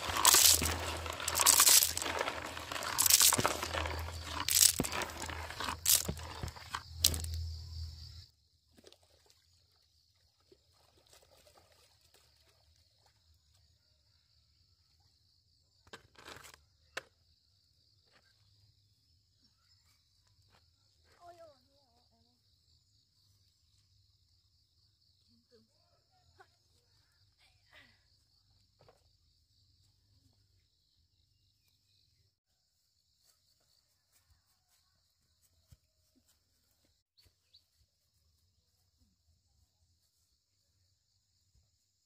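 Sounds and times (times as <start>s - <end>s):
crinkling handling noise: 0.0s - 7.5s.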